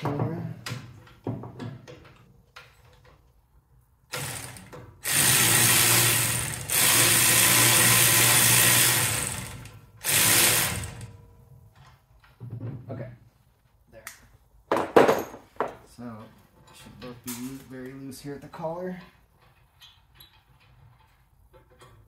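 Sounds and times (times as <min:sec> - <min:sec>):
electric ratchet whirring: 0:04.1 - 0:11.2.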